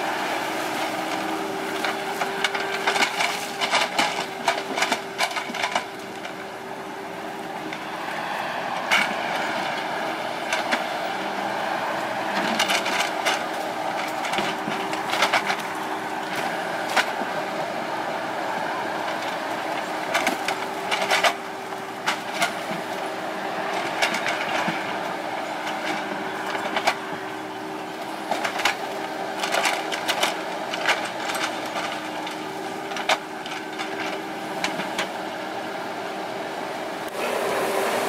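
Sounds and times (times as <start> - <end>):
diesel engine running: 0.0 - 38.0
hydraulic whine: 37.0 - 38.0.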